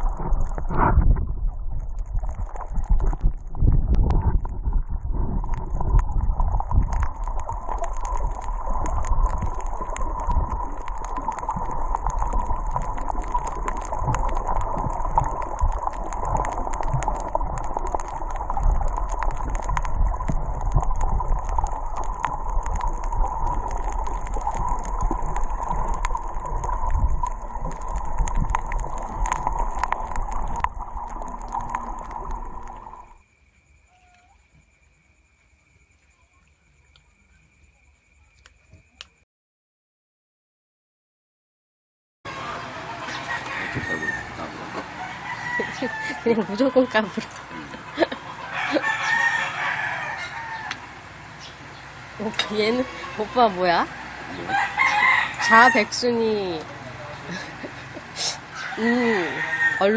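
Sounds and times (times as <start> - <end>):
crackling underwater clicks: 0.0 - 33.2, 36.9 - 37.2, 38.3 - 39.2, 45.6 - 48.9, 50.6 - 54.0, 54.8 - 58.1
muffled underwater rush: 0.0 - 33.2, 42.3 - 59.9.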